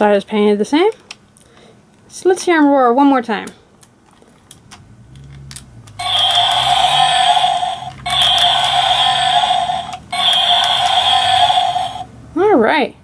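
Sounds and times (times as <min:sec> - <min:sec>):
small toy clicks: 0:05.9 - 0:12.0
toy dinosaur roar from speaker: 0:06.0 - 0:12.1.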